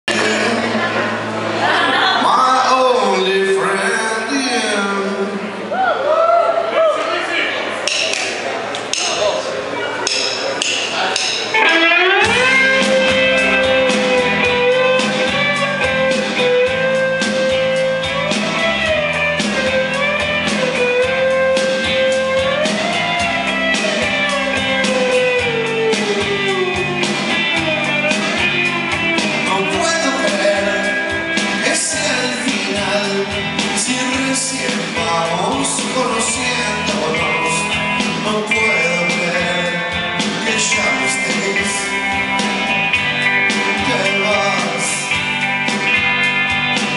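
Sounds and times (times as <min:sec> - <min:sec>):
rock band playing: 0:00.0 - 0:05.7, 0:07.9 - 0:46.9.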